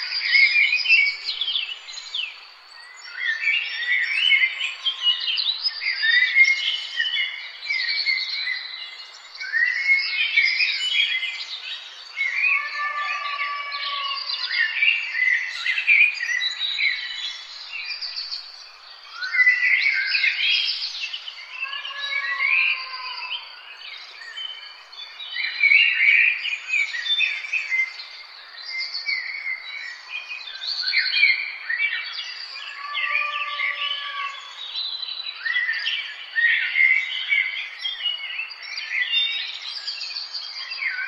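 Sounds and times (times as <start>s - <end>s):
songbirds singing and chirping: 0.0s - 41.0s.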